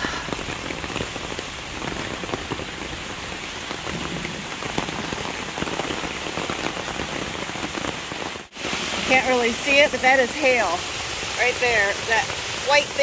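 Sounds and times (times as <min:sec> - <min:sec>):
rain pattering on umbrella: 0:00.0 - 0:13.0.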